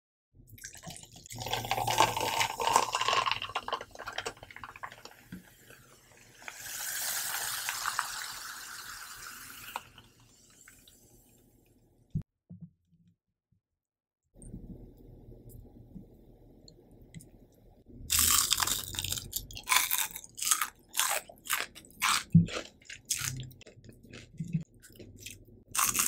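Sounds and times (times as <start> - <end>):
cola pouring into tumbler: 0.6 - 11.0.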